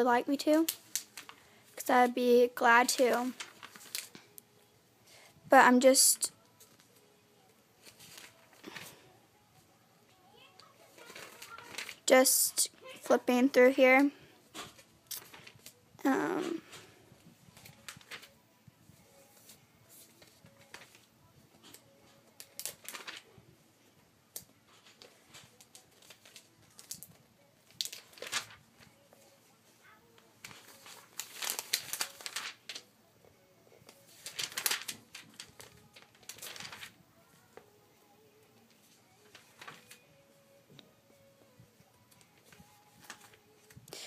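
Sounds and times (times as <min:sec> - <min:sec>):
magazine pages turning: 0:00.5 - 0:01.5, 0:02.8 - 0:04.3, 0:07.8 - 0:09.0, 0:10.9 - 0:13.0, 0:14.5 - 0:18.4, 0:19.2 - 0:23.3, 0:24.3 - 0:29.3, 0:30.4 - 0:32.9, 0:33.9 - 0:37.6, 0:38.7 - 0:40.1, 0:42.1 - 0:43.9.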